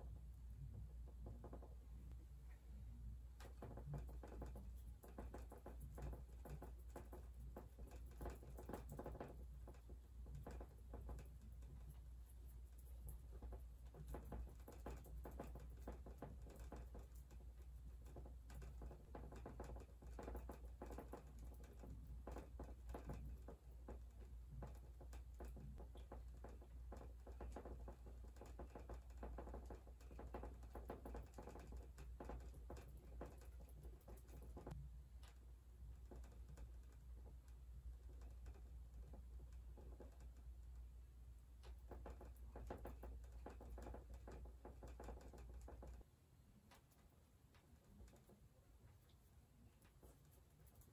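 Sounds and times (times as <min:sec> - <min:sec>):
low steady hum: 0:00.0 - 0:29.2, 0:31.7 - 0:50.9
paintbrush tapping on canvas: 0:00.6 - 0:01.8, 0:03.4 - 0:35.4.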